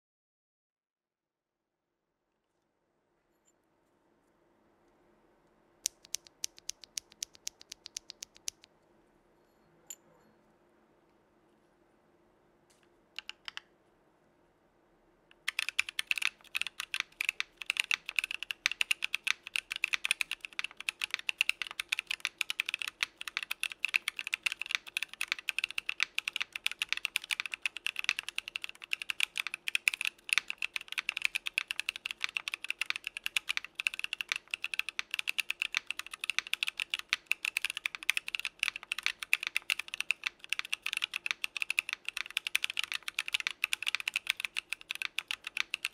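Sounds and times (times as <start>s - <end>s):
mechanical keyboard typing: 5.8s - 8.7s, 13.2s - 13.7s, 15.3s - 45.9s.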